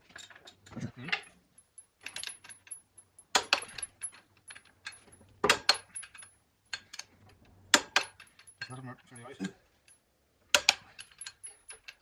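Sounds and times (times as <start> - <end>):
small metal objects clinking: 0.0 - 12.0.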